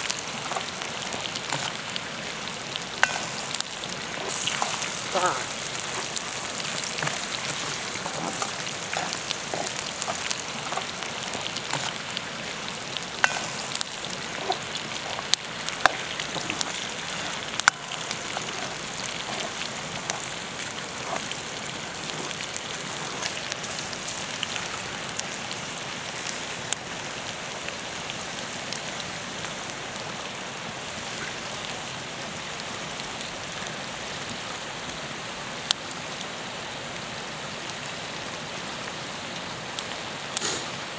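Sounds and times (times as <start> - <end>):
food sizzling in oil: 0.0 - 29.0
oil popping and crackling: 0.0 - 31.9.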